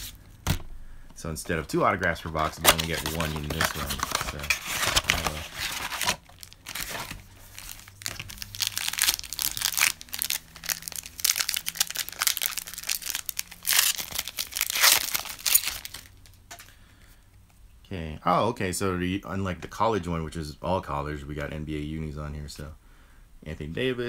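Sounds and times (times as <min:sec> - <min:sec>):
packaging tearing and crinkling: 0:02.3 - 0:16.4.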